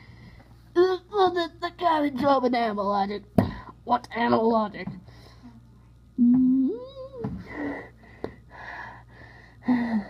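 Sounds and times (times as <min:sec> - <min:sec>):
person humming rising hmm: 0:06.2 - 0:07.3.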